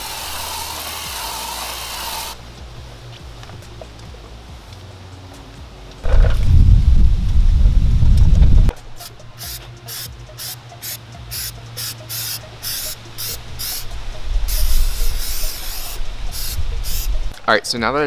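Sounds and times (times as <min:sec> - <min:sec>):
aerosol can spraying: 0:00.0 - 0:02.4, 0:09.0 - 0:17.3.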